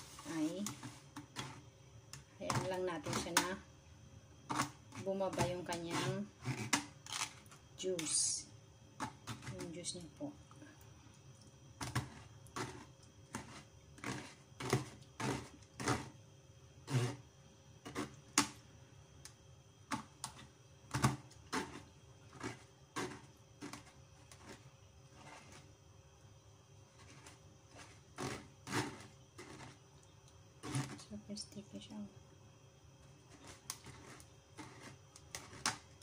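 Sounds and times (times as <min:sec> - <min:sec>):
metal spoon scraping wire-mesh strainer: 0:04.5 - 0:07.4.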